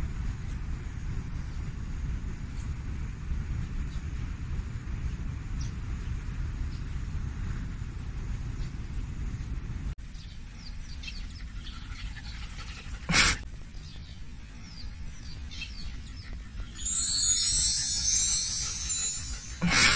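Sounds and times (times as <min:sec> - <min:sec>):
bright chiming music: 0:16.8 - 0:19.9.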